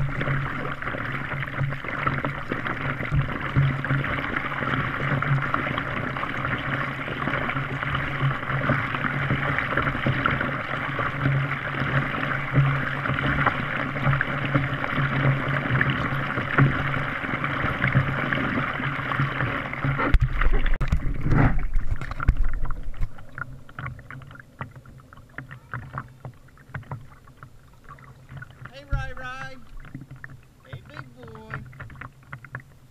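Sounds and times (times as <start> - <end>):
water rushing along a hull: 0.0 - 32.9
small splashes and drips: 21.7 - 32.9.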